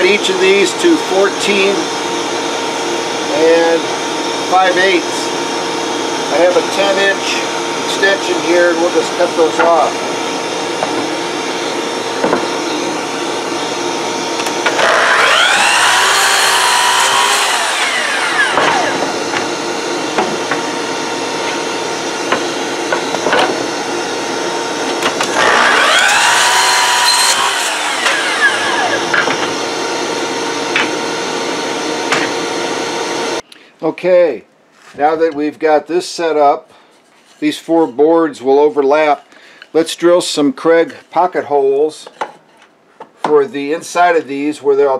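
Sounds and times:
miter saw cutting wood: 0.0s - 33.4s
dust extractor hum: 0.0s - 33.7s
boards knocking: 12.2s - 12.5s.

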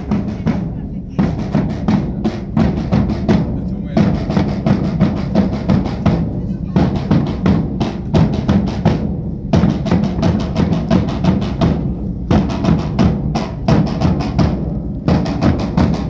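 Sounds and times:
bass drums beating: 0.0s - 16.0s
snare drum: 0.0s - 16.0s.

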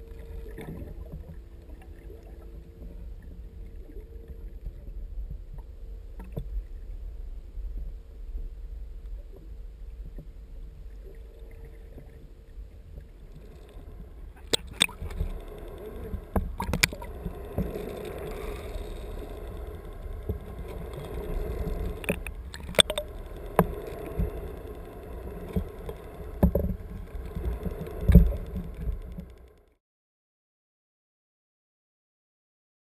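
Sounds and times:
low underwater rumble: 0.0s - 29.8s
water sloshing: 13.2s - 29.4s
sharp clicks and knocks: 21.9s - 29.6s.

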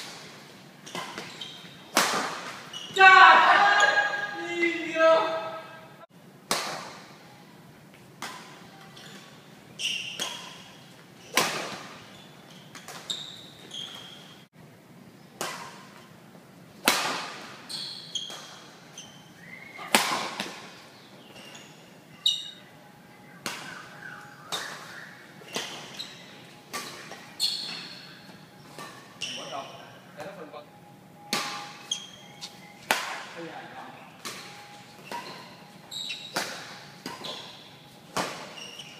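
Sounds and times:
rackets striking shuttlecock: 0.0s - 2.7s, 15.4s - 16.0s, 16.8s - 17.6s, 23.4s - 29.3s, 31.3s - 33.4s, 34.2s - 38.9s
shoe squeaks: 0.8s - 1.9s, 2.5s - 3.0s, 8.6s - 14.5s, 17.6s - 19.9s, 21.2s - 22.7s, 23.7s - 30.3s, 31.5s - 32.9s, 34.0s - 38.9s.

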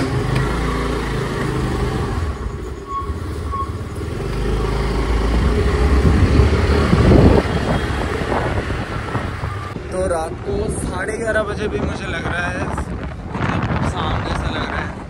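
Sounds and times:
scooter engine pulling away: 0.0s - 9.6s
road noise: 0.0s - 15.0s.

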